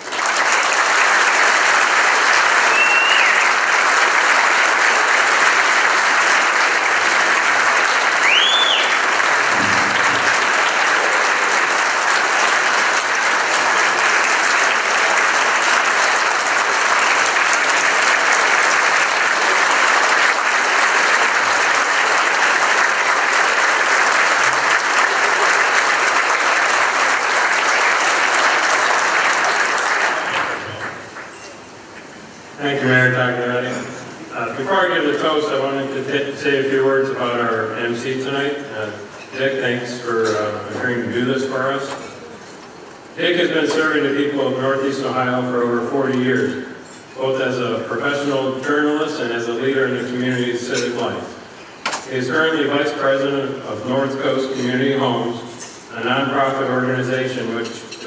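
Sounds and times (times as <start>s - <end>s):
large audience applauding: 0.0s - 31.6s.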